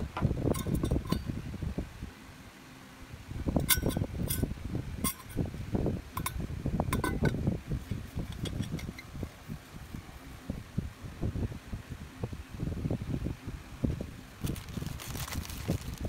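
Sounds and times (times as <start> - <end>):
metallic clinks: 0.5 - 1.3, 3.6 - 5.4
rustling handling noise: 14.3 - 16.0.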